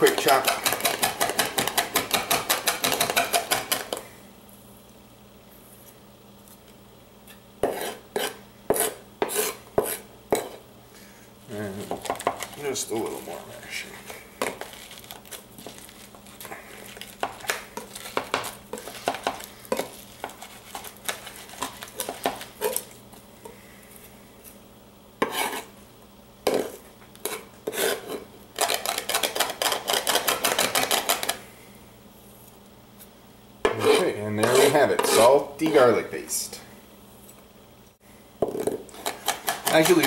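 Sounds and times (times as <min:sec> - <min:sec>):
knife chopping on cutting board: 0:00.0 - 0:04.0, 0:07.6 - 0:10.6, 0:25.2 - 0:25.7, 0:38.4 - 0:40.0
knife scraping on cutting board: 0:07.6 - 0:10.6, 0:12.0 - 0:23.0, 0:25.2 - 0:25.7, 0:26.5 - 0:31.4, 0:33.7 - 0:35.4, 0:38.9 - 0:40.0.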